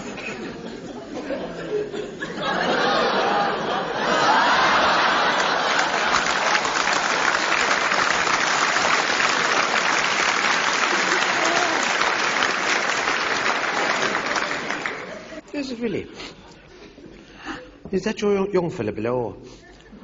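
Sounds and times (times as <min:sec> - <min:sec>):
audience applauding: 0:04.1 - 0:15.4.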